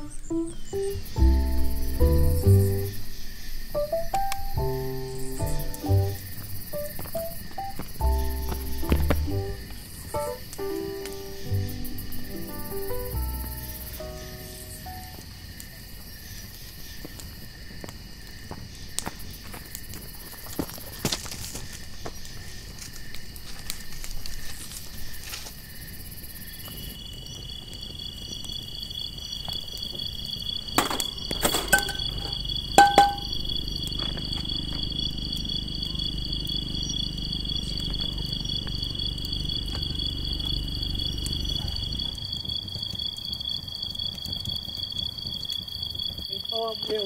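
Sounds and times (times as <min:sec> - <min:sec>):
high insect drone: 0:00.0 - 0:47.0
distant vehicle engine rumble: 0:01.0 - 0:03.1, 0:04.2 - 0:14.3, 0:30.8 - 0:42.2
sharp knocks: 0:30.8 - 0:33.4.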